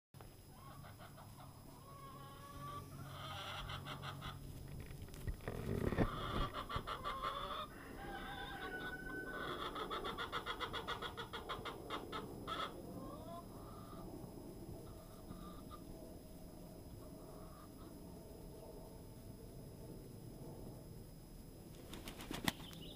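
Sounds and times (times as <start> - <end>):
faint distant rooster crowing: 5.8 - 11.3
rooster crowing close by: 6.0 - 10.2.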